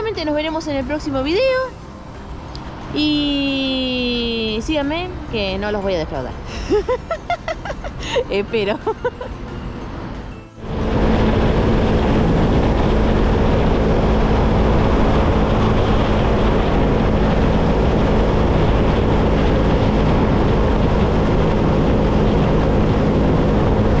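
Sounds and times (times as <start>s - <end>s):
wind rush on microphone: 0.0s - 24.0s
motorcycle engine cruising: 6.4s - 24.0s.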